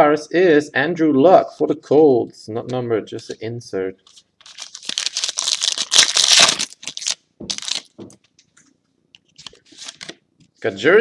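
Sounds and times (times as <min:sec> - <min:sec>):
foil wrapper crinkling: 0:04.1 - 0:08.0, 0:09.3 - 0:10.2.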